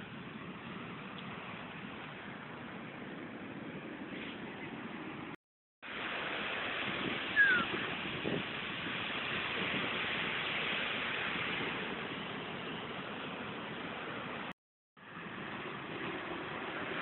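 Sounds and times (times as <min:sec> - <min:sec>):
heavy surf breaking: 0:05.9 - 0:14.4
high falling chirp: 0:07.4 - 0:07.9.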